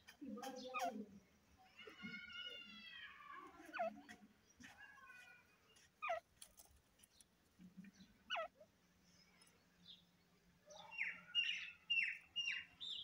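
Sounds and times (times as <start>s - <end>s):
francolin calls: 8.2s - 8.7s.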